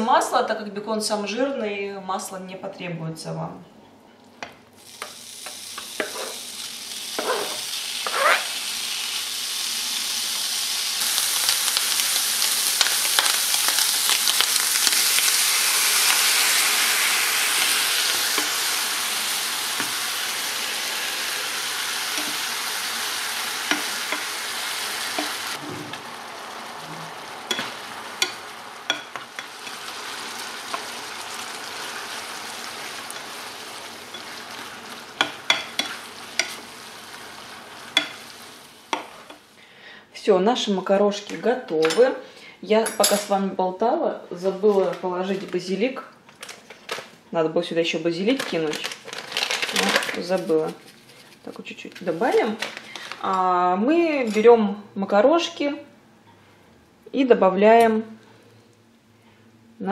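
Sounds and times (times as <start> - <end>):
bacon sizzling in a frying pan: 4.8 - 39.6.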